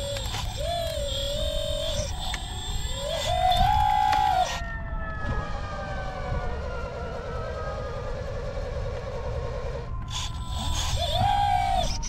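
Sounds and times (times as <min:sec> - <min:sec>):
electric motor whine: 0:00.0 - 0:05.4, 0:09.1 - 0:12.0.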